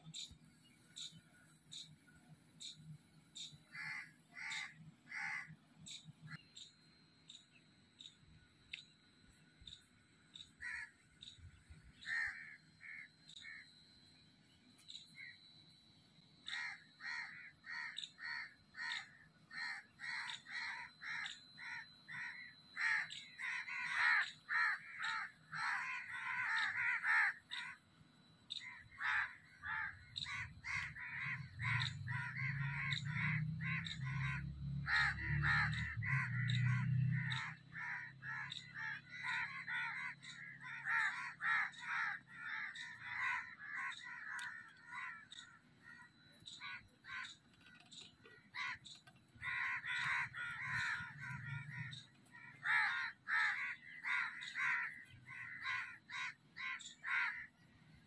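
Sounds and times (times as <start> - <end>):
crows cawing: 3.7 - 5.6, 10.6 - 13.7, 16.4 - 27.8, 28.5 - 57.6.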